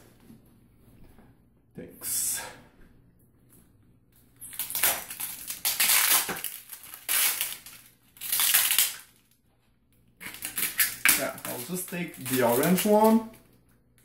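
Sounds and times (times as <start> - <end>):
plastic wrapping crinkling and tearing: 4.4 - 9.4, 10.2 - 13.6.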